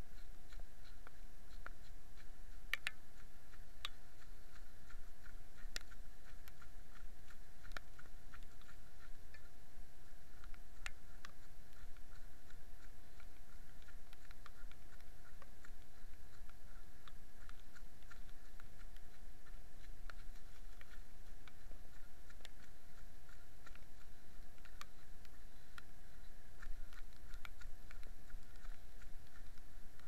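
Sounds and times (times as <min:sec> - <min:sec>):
faint steady hum: 0:00.0 - 0:30.0
clicks and taps on camera: 0:02.6 - 0:03.1.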